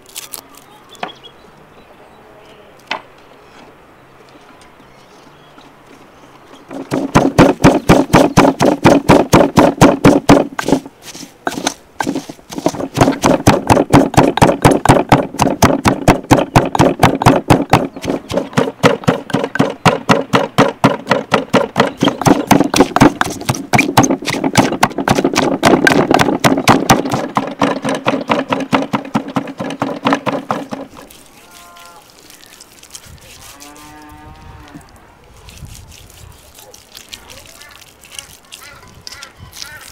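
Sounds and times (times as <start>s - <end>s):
pestle pounding in bowl: 6.7s - 31.6s.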